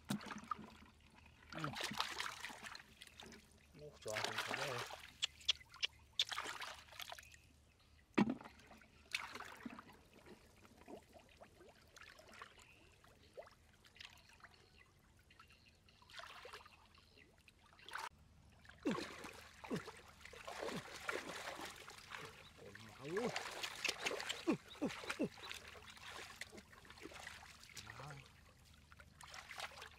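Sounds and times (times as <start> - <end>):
hands sloshing in muddy water: 0.0 - 7.2, 8.2 - 14.2, 17.8 - 29.9
sharp water splash: 4.1 - 7.2, 18.8 - 22.4, 23.0 - 27.8.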